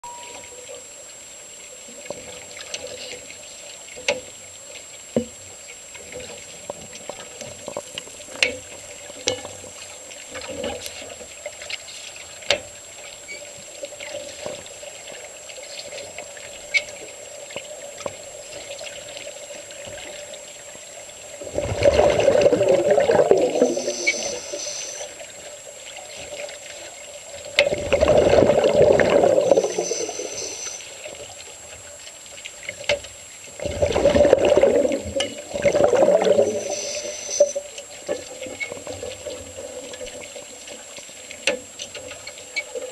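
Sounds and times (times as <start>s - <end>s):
small underwater clicks and ticks: 0.3s - 42.9s
diver exhaling bubbles: 21.4s - 25.1s, 27.7s - 30.9s, 33.6s - 37.6s.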